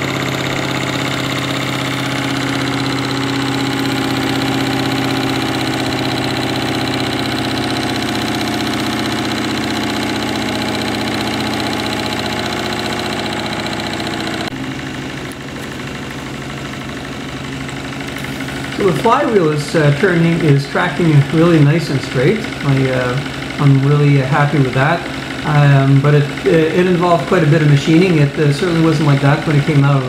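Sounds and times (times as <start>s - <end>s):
steam engine running: 0.0s - 30.0s
steam hissing: 15.5s - 30.0s.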